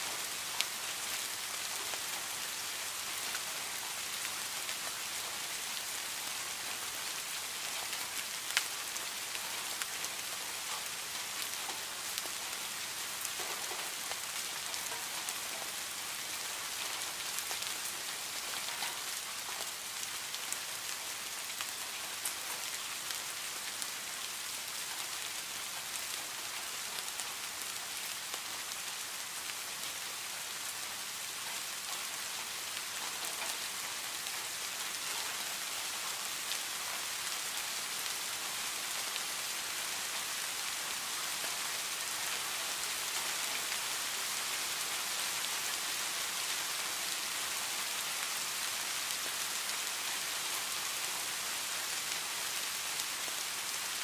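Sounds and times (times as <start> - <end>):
rain falling on leaves: 0.0 - 54.0.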